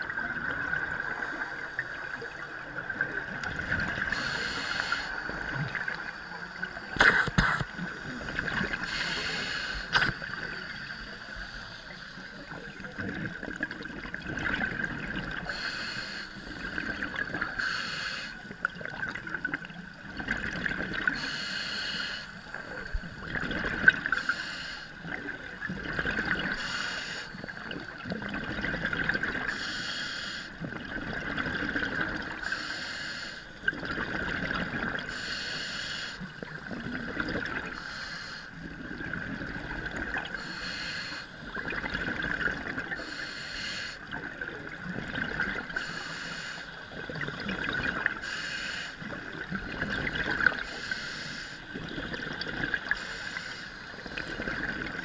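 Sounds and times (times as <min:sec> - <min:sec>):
regulator breathing hiss: 0:04.1 - 0:05.3, 0:08.8 - 0:12.5, 0:15.4 - 0:16.8, 0:17.5 - 0:18.4, 0:21.1 - 0:22.8, 0:24.1 - 0:25.1, 0:26.6 - 0:27.5, 0:29.5 - 0:30.6, 0:32.4 - 0:33.6, 0:35.1 - 0:36.2, 0:37.7 - 0:38.6, 0:40.4 - 0:41.4, 0:43.0 - 0:44.0, 0:45.8 - 0:46.8, 0:48.2 - 0:49.1, 0:50.6 - 0:51.7, 0:53.0 - 0:54.0.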